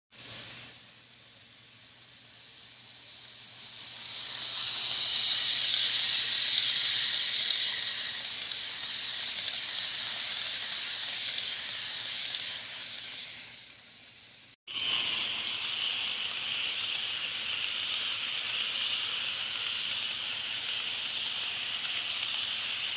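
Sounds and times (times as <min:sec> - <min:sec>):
model train rolling past: 0:00.2 - 0:22.9.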